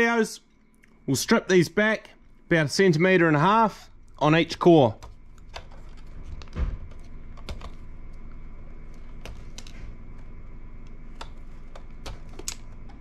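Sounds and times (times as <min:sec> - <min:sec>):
wire strippers clicking and snipping: 0:10.8 - 0:13.0.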